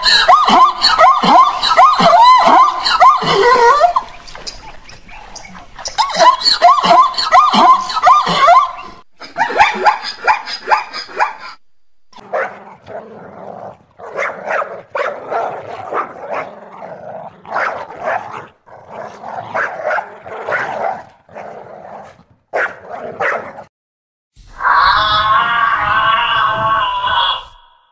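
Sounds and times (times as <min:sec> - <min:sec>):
puppy barking and growling: 0:05.1 - 0:11.6, 0:12.2 - 0:23.7.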